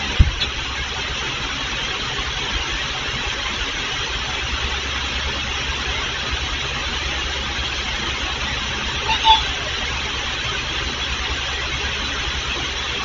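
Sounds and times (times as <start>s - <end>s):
electric fan running: 0.0s - 13.0s.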